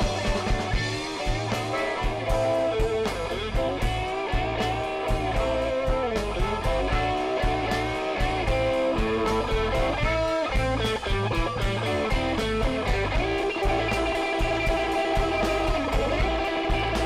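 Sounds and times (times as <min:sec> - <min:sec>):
amplified harmonica: 0:00.0 - 0:17.0
blues-rock band playing: 0:00.0 - 0:17.0.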